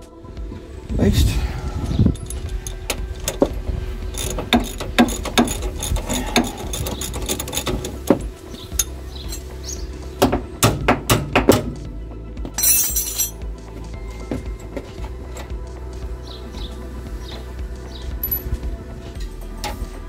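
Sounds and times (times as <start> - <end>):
background music: 0.0 - 20.0
metal clinks: 2.1 - 9.8, 12.5 - 13.4, 18.2 - 18.6
ratchet wrench clicking: 4.1 - 9.8.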